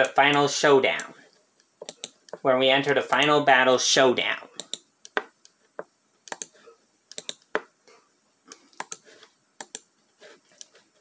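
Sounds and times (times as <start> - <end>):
computer keys clicking: 1.0 - 2.4, 4.6 - 5.6, 6.2 - 7.7, 8.5 - 9.0, 9.6 - 9.9.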